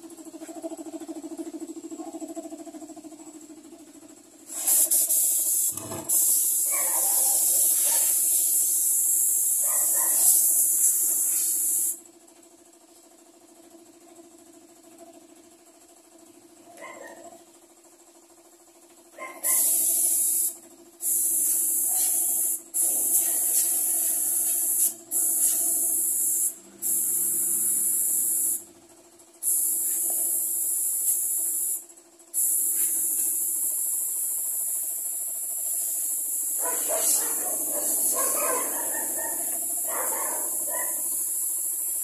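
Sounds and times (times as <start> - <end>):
spray gun hissing: 4.5 - 6.7, 7.3 - 9.6, 10.2 - 11.9, 19.5 - 28.6, 29.4 - 31.8, 32.4 - 42.0
steady low hum: 19.4 - 42.0.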